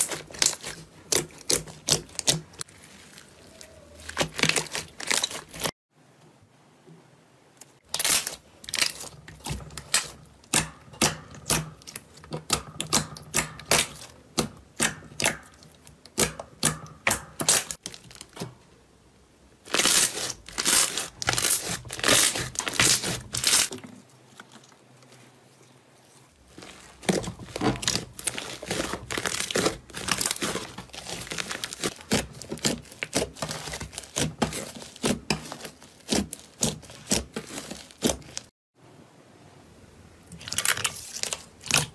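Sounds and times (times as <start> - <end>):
slime crackling and popping: 0.0 - 5.7, 7.8 - 14.1, 14.7 - 18.4, 19.7 - 23.7, 26.5 - 38.5.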